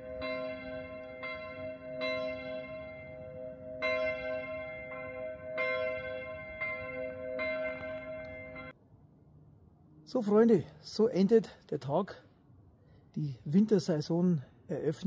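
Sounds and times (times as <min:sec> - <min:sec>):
church bells ringing: 0:00.0 - 0:08.8.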